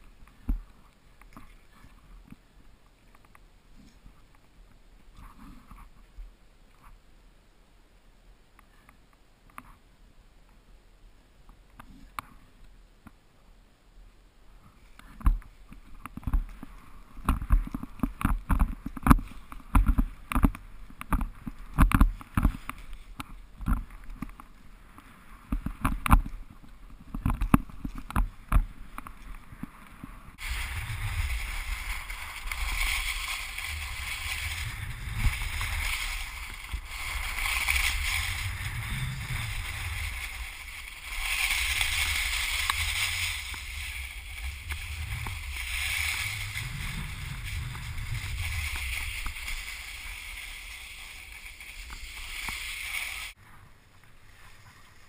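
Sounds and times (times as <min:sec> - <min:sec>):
skis sliding over snow: 0:14.6 - 0:55.0
skis thumping through snow: 0:27.0 - 0:53.4
wind rushing on microphone: 0:29.4 - 0:53.4
low rumble: 0:30.3 - 0:53.4.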